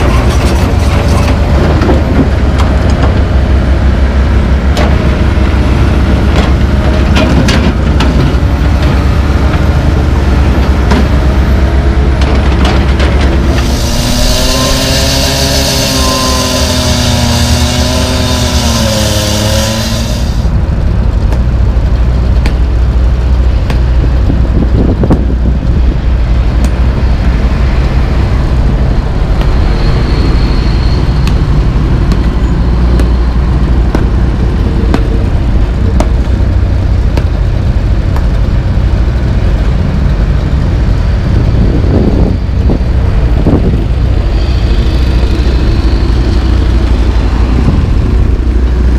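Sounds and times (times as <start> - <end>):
diesel engine running: 0.0 - 48.9
wavering whine: 13.3 - 20.8, 41.6 - 48.9
loud hiss: 13.6 - 17.4.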